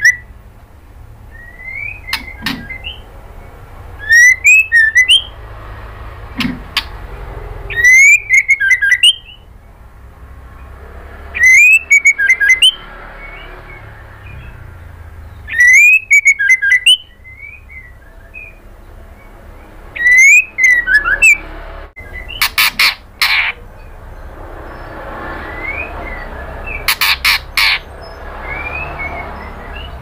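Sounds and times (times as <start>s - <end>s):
bird whistling call: 0.0s - 0.3s, 1.3s - 3.1s, 3.9s - 5.4s, 7.7s - 9.5s, 11.3s - 19.3s, 19.9s - 21.4s, 25.4s - 30.0s
harsh scratchy bird notes: 1.4s - 9.5s, 10.6s - 30.0s.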